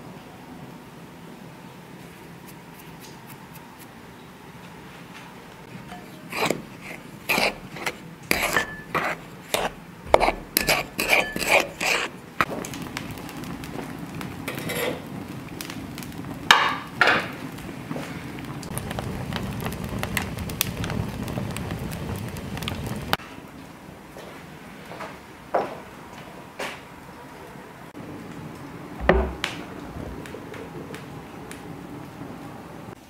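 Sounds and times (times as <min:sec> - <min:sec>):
fire rushing: 0:05.7 - 0:23.2
wooden spoon scraping bowl: 0:05.9 - 0:12.3.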